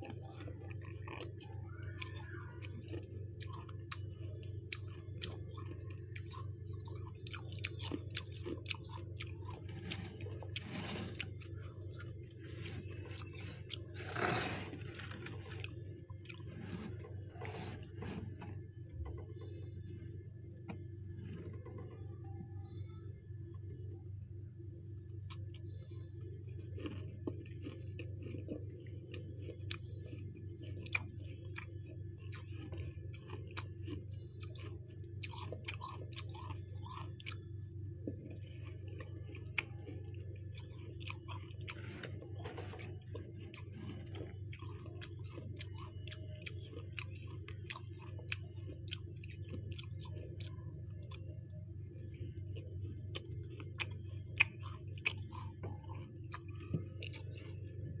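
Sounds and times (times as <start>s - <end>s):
steady low hum: 0.0s - 58.0s
ice crunching between teeth: 0.2s - 18.5s.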